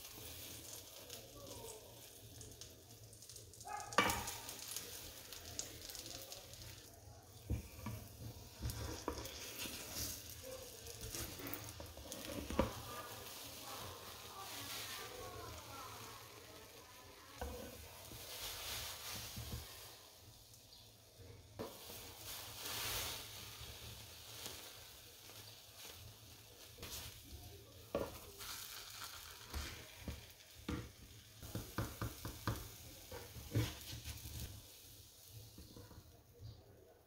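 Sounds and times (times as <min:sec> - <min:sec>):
butter sizzling in a pan: 0:00.0 - 0:37.0
spatula scraping and tapping pan: 0:02.0 - 0:14.9, 0:17.4 - 0:19.9, 0:21.6 - 0:27.3, 0:27.9 - 0:34.8, 0:35.4 - 0:36.2.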